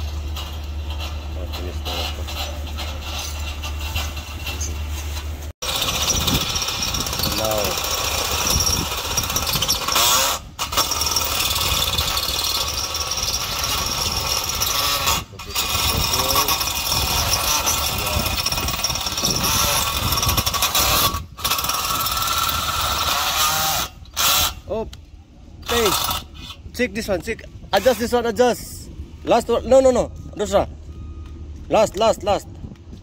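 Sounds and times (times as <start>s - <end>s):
cordless drill boring into metal: 5.6s - 24.6s, 25.6s - 26.3s.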